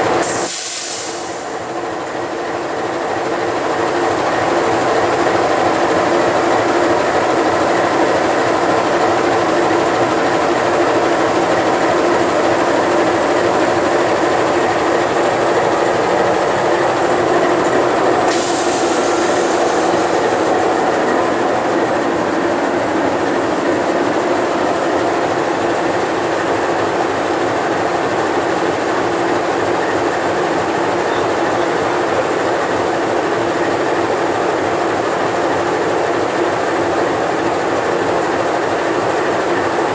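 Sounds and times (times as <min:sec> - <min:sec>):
diesel locomotive engine idling: 0:00.0 - 0:39.9
sharp hiss: 0:00.2 - 0:01.8, 0:18.3 - 0:20.5.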